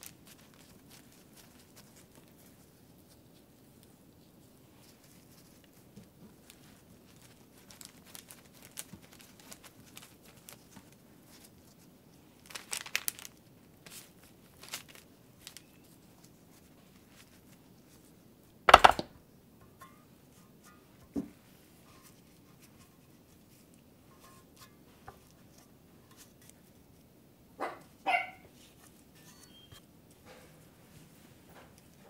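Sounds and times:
parchment paper crinkling: 0.0s - 4.0s, 4.8s - 19.1s
loud knock: 18.7s - 19.2s.

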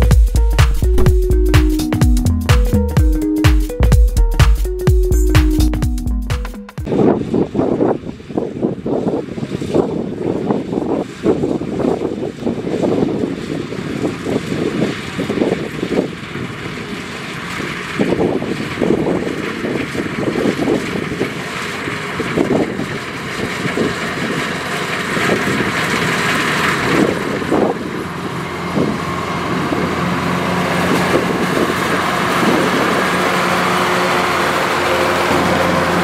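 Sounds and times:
combine harvester running: 0.0s - 4.0s, 6.8s - 36.0s
wind buffeting microphone: 6.8s - 33.2s.

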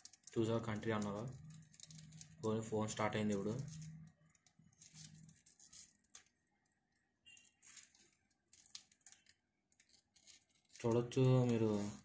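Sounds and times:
soft rustles of handling: 0.0s - 12.0s.

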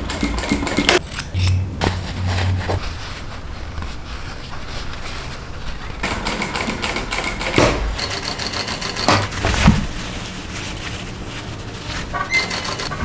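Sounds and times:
sewing machine stitching: 0.0s - 1.0s, 6.0s - 9.4s, 12.2s - 13.0s.

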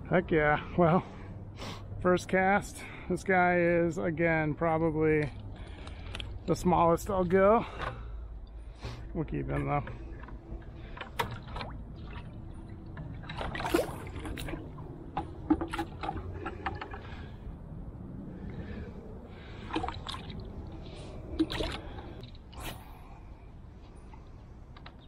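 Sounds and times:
water splashing in a plastic bucket: 10.8s - 17.2s, 19.4s - 22.4s.

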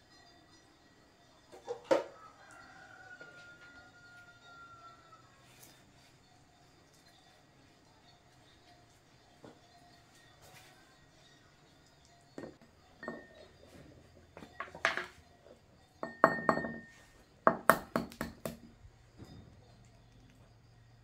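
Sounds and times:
dishes and utensils clinking: 12.4s - 18.4s.

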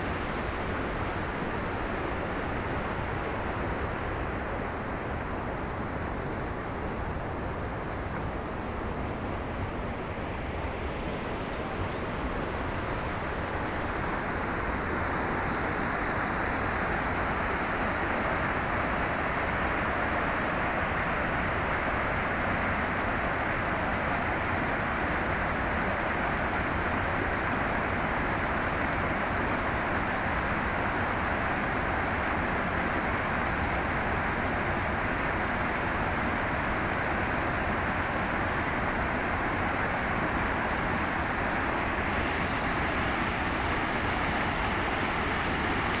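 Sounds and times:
stream rushing over rocks: 9.7s - 46.0s.

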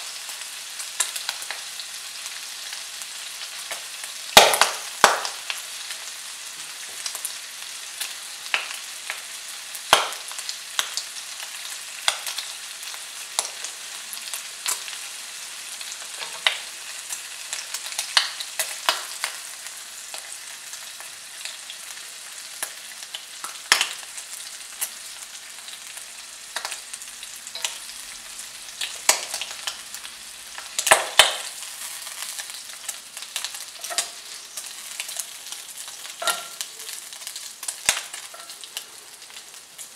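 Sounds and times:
bacon sizzling in a pan: 0.0s - 39.9s
fat popping and crackling: 4.4s - 5.4s.

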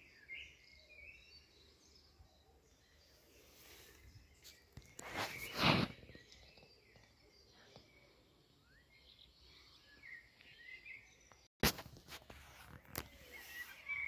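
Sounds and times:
faint bird chirps: 0.0s - 11.5s, 12.5s - 14.0s.

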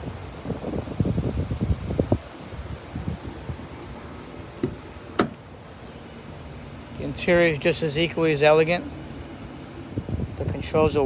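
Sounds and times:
insects chirring: 0.0s - 11.0s
rustling and knocks: 4.6s - 5.4s.

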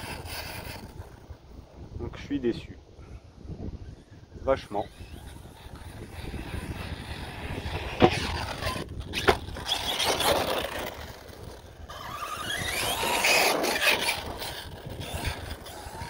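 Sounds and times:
electric motor whine: 4.6s - 16.0s.

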